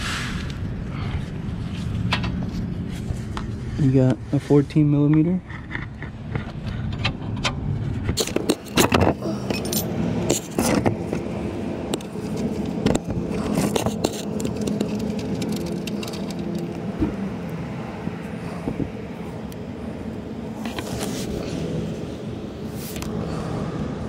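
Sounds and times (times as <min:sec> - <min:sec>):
metal wrench clinking: 0:08.2 - 0:10.6.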